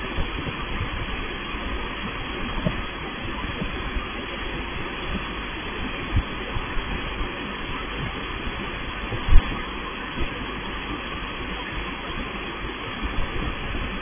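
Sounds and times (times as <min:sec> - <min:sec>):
car wash machine rumble and rushing: 0:00.0 - 0:14.0.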